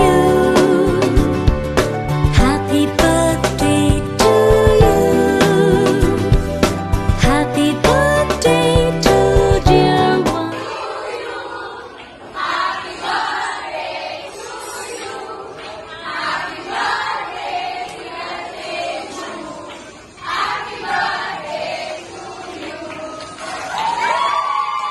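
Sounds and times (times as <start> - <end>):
crowd singing: 0.0 - 1.4, 7.9 - 23.8.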